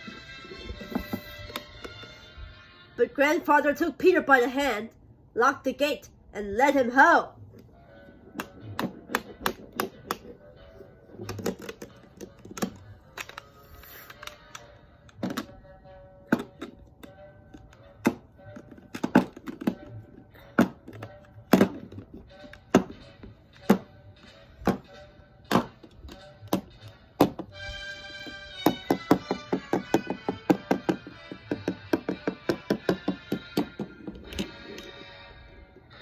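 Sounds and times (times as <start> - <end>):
background music: 0.0 - 36.0
plastic toys knocking on wooden floor: 18.0 - 23.0, 24.6 - 24.9, 25.5 - 27.5, 28.6 - 34.5.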